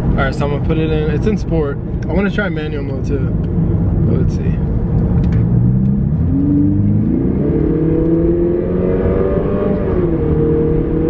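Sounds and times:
car engine accelerating hard: 3.8 - 11.0.

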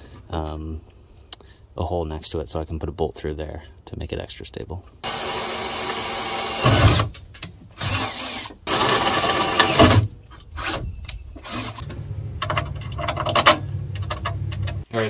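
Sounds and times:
power drill boring through metal: 5.0 - 7.1, 7.8 - 10.0, 11.4 - 11.8.

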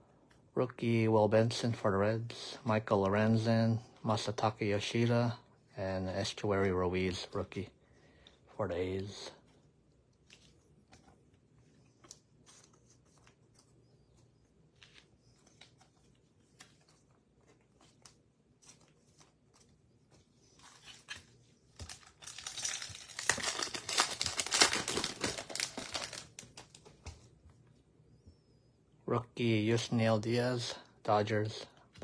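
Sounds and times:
cards and packaging clicking: 20.6 - 27.3
wrapper tearing and crinkling: 21.8 - 26.8.

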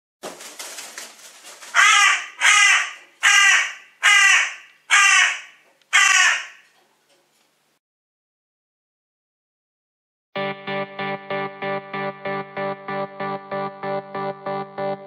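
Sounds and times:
rapid rustling: 0.2 - 2.2
crow cawing: 1.8 - 6.8.

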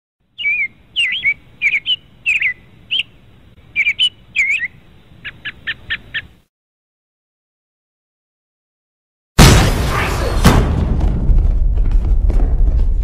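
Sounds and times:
small birds chirping: 0.3 - 6.5.

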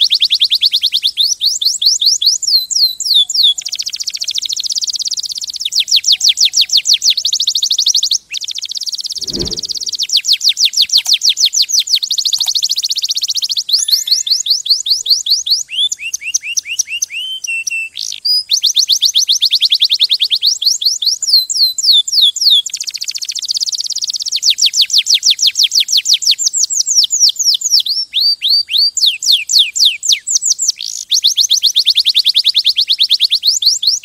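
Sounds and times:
canary singing trills: 13.3 - 18.1.

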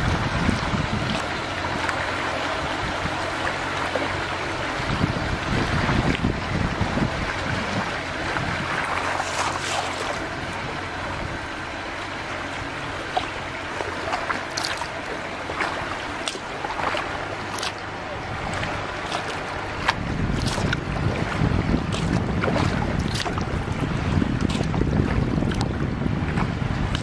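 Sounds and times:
water rippling around kayak: 0.0 - 27.0
wind rumble on microphone: 0.0 - 27.0
small sharp paddle splashes: 8.8 - 10.2, 13.1 - 17.9, 18.5 - 20.8, 21.9 - 23.5, 24.4 - 24.8, 26.4 - 27.0.

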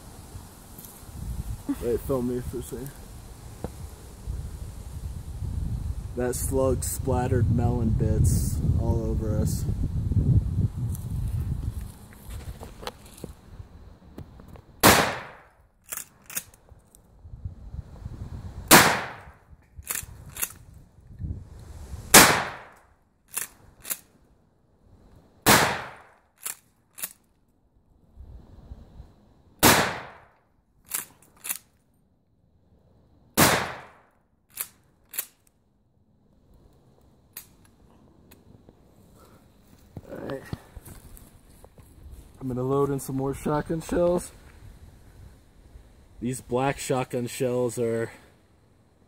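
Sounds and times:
shotgun shots: 14.8 - 15.5, 18.7 - 19.3, 22.1 - 22.8, 25.5 - 26.1, 29.6 - 30.3, 33.4 - 34.0
shotgun pump clacks: 15.9 - 16.6, 23.3 - 24.1.

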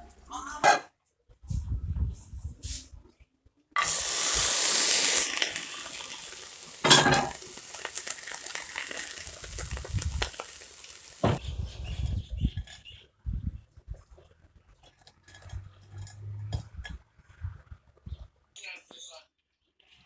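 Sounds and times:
seeds sizzling in a frying pan: 3.8 - 11.5.

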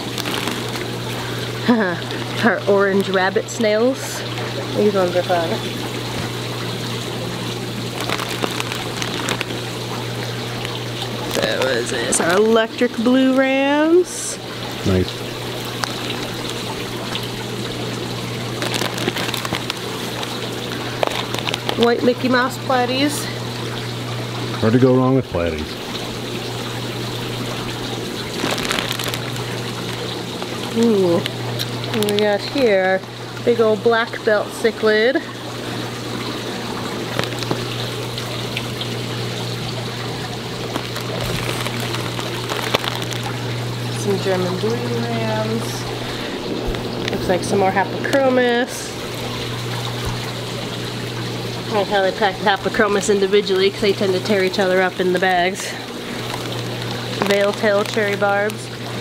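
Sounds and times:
plastic bags crinkling: 0.0 - 3.6, 6.1 - 13.4, 15.2 - 22.6, 26.6 - 32.8, 36.0 - 48.3, 51.7 - 59.0
low steady hum: 0.0 - 59.0
water trickling and pouring: 0.0 - 59.0.

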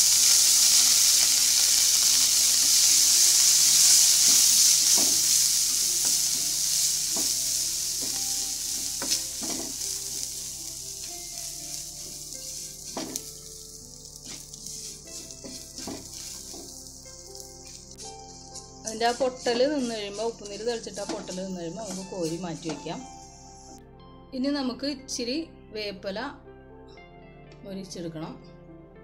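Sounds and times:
frying sizzling and crackling: 0.0 - 23.7
spatula scraping pan: 14.1 - 16.7, 17.6 - 22.9.

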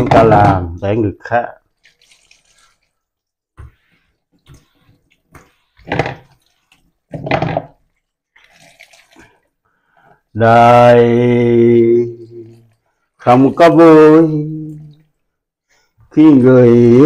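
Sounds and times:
water splashing in sink: 0.0 - 9.6, 11.3 - 15.3.

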